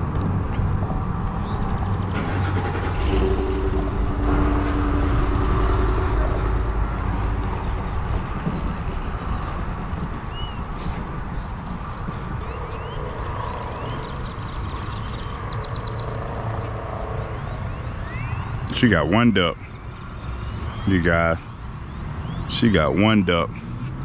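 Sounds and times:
vehicle engine passing: 0.0 - 18.8
road traffic rumble: 0.0 - 24.0.

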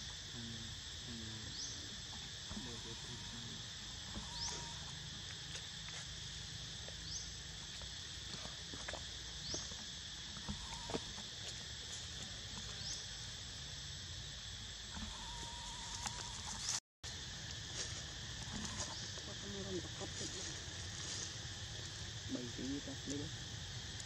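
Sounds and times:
insect chorus: 0.0 - 24.0.

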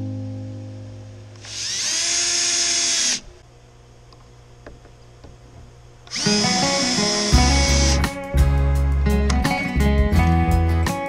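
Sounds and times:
cordless drill whine: 1.4 - 3.4, 6.1 - 8.1.

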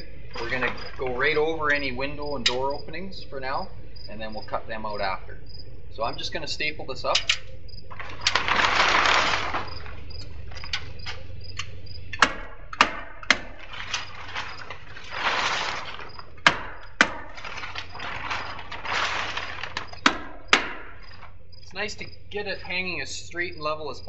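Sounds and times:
plastic wrap rustling and crinkling: 0.0 - 1.7, 7.9 - 11.3, 13.4 - 21.4.

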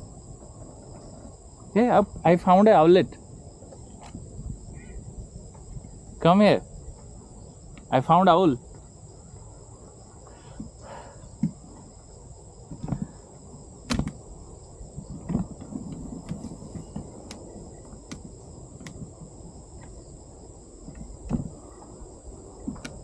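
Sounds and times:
high-pitched insect chorus: 0.0 - 23.0
soft thumps of handling: 15.1 - 19.1.

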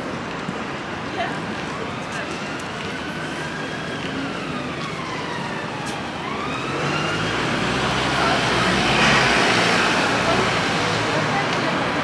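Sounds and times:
street traffic: 0.0 - 12.0
emergency siren wailing: 1.8 - 10.4.

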